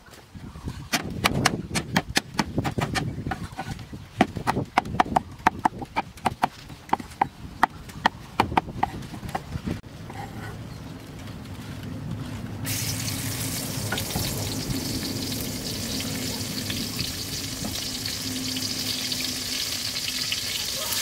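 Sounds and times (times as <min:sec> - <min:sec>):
cleaver chopping on wooden block: 0:00.9 - 0:09.4.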